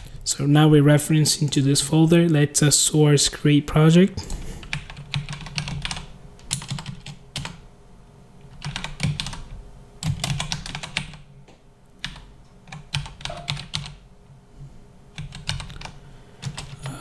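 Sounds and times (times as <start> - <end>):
computer keyboard typing: 4.6 - 7.6, 8.5 - 11.3, 12.0 - 14.0, 15.1 - 17.0.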